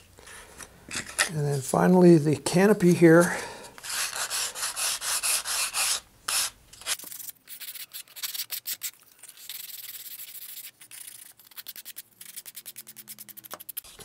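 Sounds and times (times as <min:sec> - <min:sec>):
sandpaper scratching: 0:03.8 - 0:14.0.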